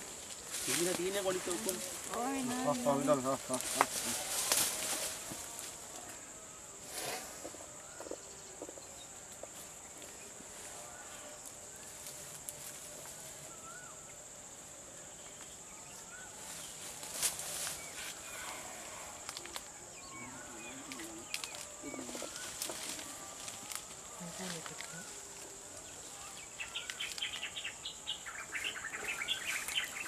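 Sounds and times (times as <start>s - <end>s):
rustles and clicks: 0.0s - 5.8s
high-pitched insect chorus: 0.0s - 30.0s.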